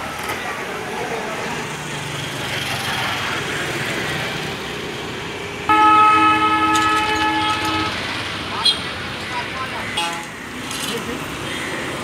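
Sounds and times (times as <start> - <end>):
street traffic noise: 0.0 - 12.0
coach horn chord: 5.7 - 7.9.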